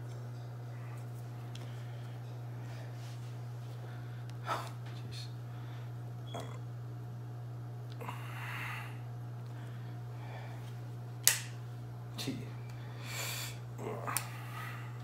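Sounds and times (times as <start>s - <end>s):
low electrical hum: 0.0s - 15.0s
small sharp clicks: 11.2s - 11.6s.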